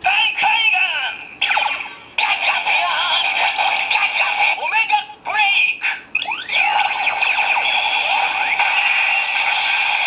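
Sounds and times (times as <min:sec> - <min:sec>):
tinny recorded voice: 0:00.1 - 0:07.1
electronic toy sound effects: 0:06.1 - 0:10.0.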